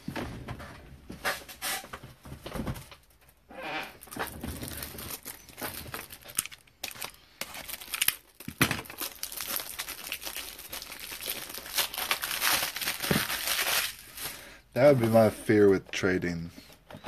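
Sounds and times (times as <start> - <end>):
plastic packaging crinkling: 3.9 - 15.4
plastic packaging clicks: 4.0 - 14.3.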